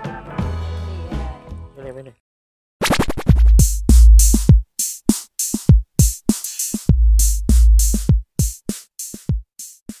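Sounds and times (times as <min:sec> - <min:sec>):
deep bass booms: 0:03.4 - 0:04.6.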